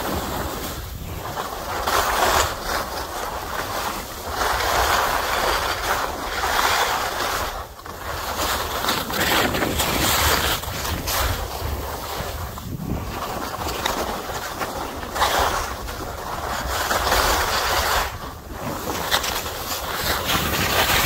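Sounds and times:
wind rushing over microphone: 0.0s - 2.7s, 8.6s - 21.0s
skis scraping on snow: 0.0s - 21.0s.

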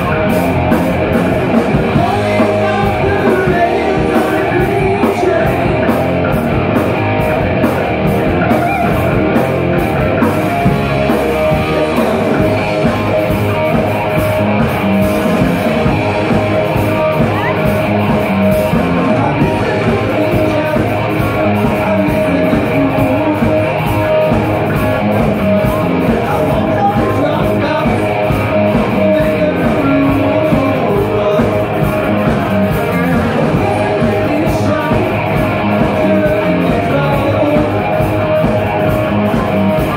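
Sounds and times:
bass guitar: 0.0s - 39.9s
drum kit: 0.0s - 39.9s
electric guitar: 0.0s - 39.9s
man singing into a microphone: 1.9s - 6.0s, 19.0s - 23.8s, 26.1s - 31.9s, 32.7s - 38.0s.

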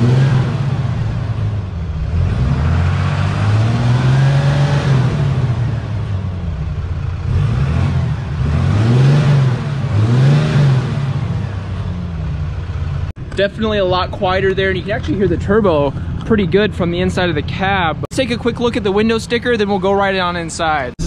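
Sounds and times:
diesel engine revving: 0.0s - 21.0s.

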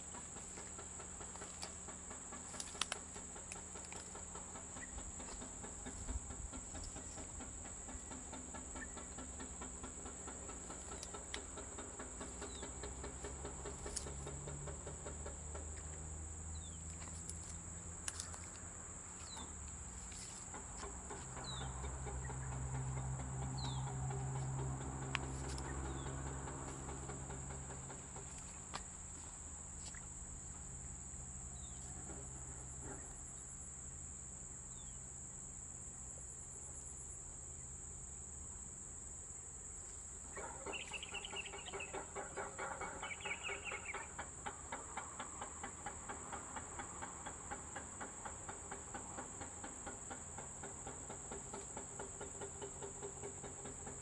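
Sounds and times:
rapid rhythmic animal call: 0.0s - 16.8s, 19.2s - 30.2s, 40.2s - 54.0s.

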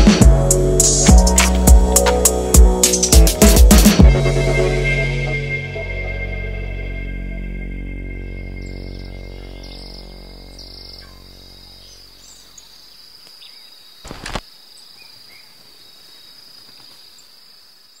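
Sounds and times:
background music: 0.0s - 11.9s
bird chirps: 8.4s - 17.4s
insect trill: 8.4s - 18.0s.

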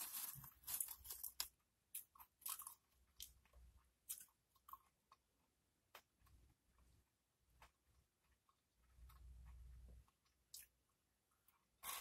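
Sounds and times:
tortilla chips crunching: 0.0s - 3.4s.

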